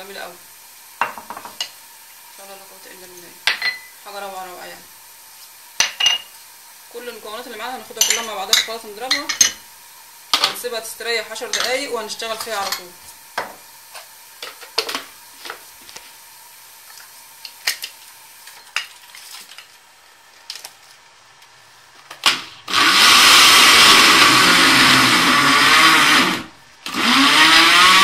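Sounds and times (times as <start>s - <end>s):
glassware clinking: 3.5s - 3.9s, 5.8s - 6.3s, 8.0s - 9.6s
electric blender running: 22.6s - 28.0s.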